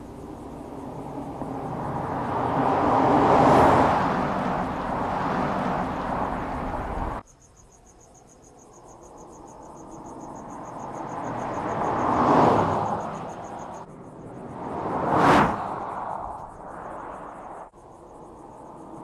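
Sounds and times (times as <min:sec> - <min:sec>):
car engine driving past: 0:00.0 - 0:07.2, 0:10.1 - 0:17.7
insect chirping: 0:00.0 - 0:19.0.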